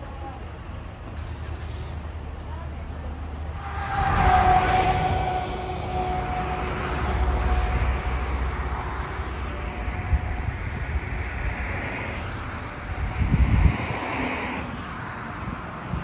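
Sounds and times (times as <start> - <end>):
vehicles passing on a road: 0.0 - 16.0
wind buffeting the microphone: 3.6 - 16.0.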